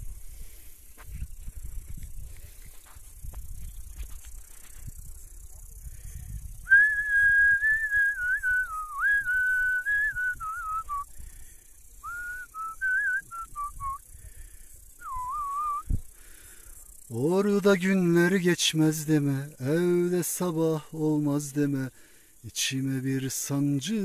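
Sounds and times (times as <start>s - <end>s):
person whistling a melody: 6.6s - 11.1s, 12.0s - 14.0s, 15.0s - 16.0s.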